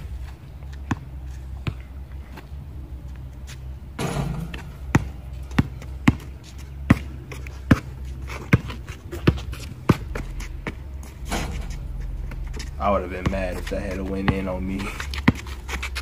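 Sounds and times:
basketball bouncing on concrete: 0.7 - 1.9, 4.0 - 10.9, 11.7 - 16.0.

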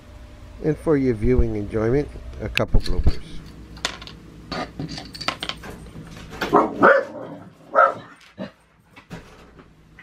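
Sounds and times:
dog barking: 6.5 - 8.2.

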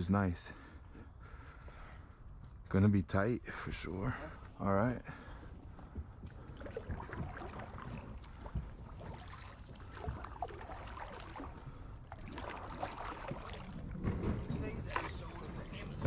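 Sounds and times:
paddle splashes: 6.3 - 16.0.

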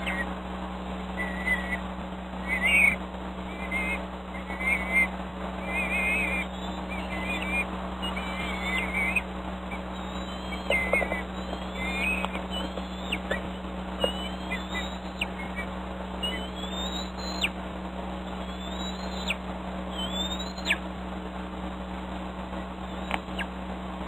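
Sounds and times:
eaglet whistling cries: 0.0 - 0.3, 1.2 - 1.8, 2.4 - 17.6, 18.4 - 20.8, 22.9 - 23.5
low hum: 0.0 - 24.0.

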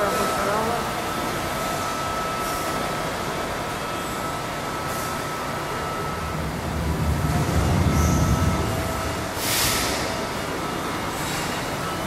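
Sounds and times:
factory machinery noise: 0.0 - 12.0
thin whine: 1.0 - 12.0
low rumble: 5.9 - 10.3.

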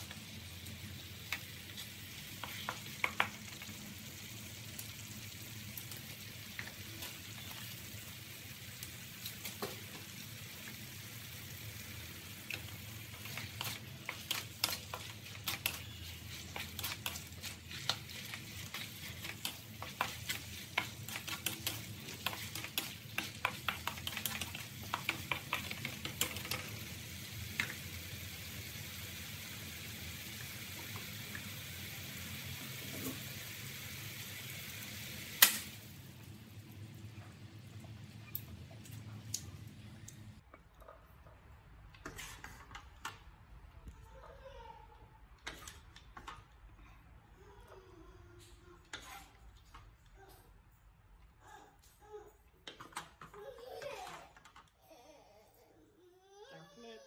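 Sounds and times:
food sizzling in wok: 0.0 - 37.0
spatula scraping wok: 12.1 - 26.8, 42.0 - 43.0.

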